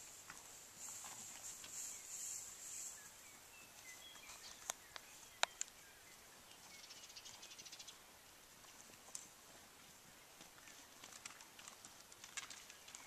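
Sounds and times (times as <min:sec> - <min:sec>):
bird chirps: 0:01.7 - 0:08.0.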